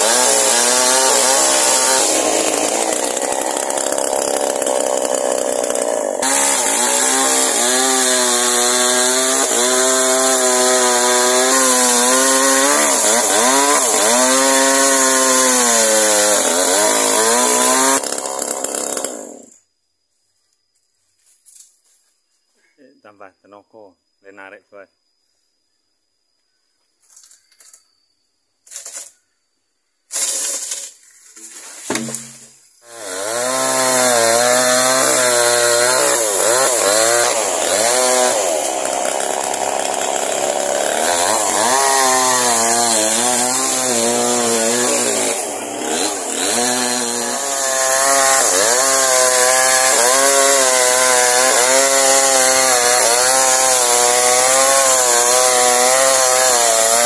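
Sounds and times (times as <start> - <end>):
chainsaw cutting wood: 0.0 - 19.6, 30.1 - 57.0.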